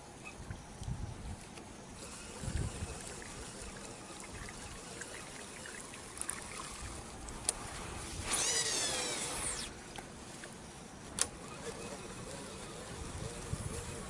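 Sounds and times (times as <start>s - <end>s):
light wind: 0.0s - 14.0s
water trickling and lapping: 2.0s - 14.0s
high whine falling in pitch: 7.9s - 9.8s.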